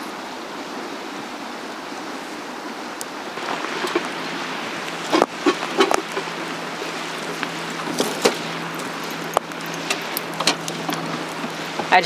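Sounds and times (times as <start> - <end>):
fire burning with crackles: 0.0 - 12.0
wood knocking onto fire: 3.4 - 12.0.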